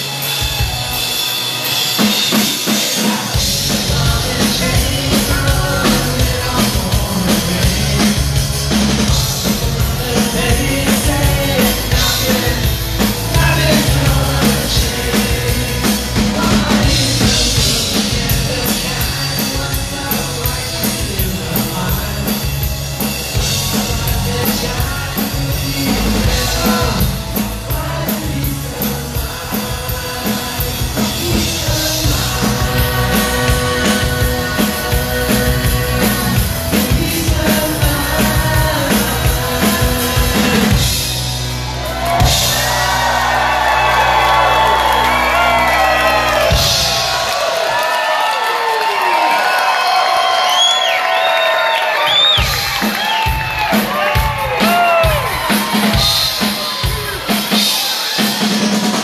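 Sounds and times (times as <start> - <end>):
live rock band playing: 0.0 - 59.0
male lead vocal: 2.2 - 41.2.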